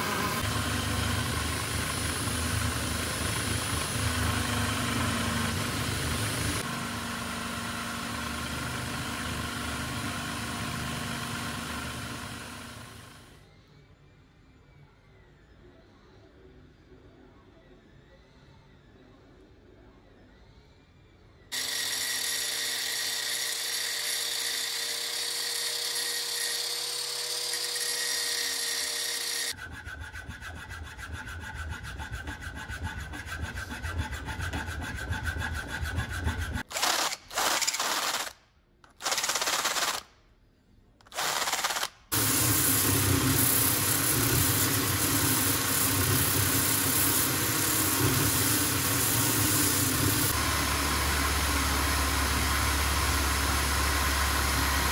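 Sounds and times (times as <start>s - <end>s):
angle grinder grinding steel: 0.0s - 13.2s, 21.6s - 36.7s, 41.2s - 54.9s
drill spinning sanding disc: 0.0s - 13.4s, 21.6s - 36.8s, 41.1s - 54.9s
hand file rasping metal: 22.4s - 36.7s.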